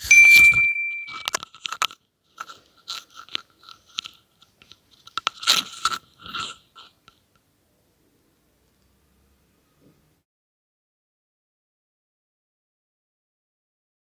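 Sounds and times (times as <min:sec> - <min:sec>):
bell-like ding: 0:00.0 - 0:01.4.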